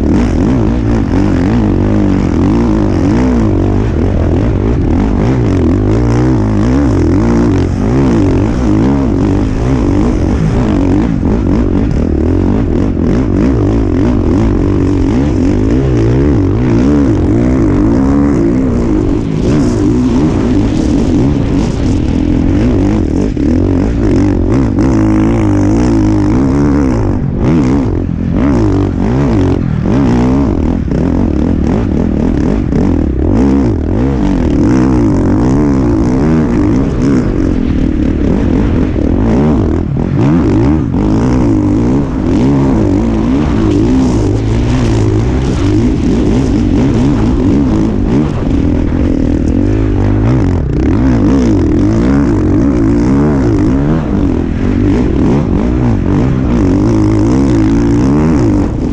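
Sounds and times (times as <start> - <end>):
motocross bike engine revving: 0.0 - 58.9.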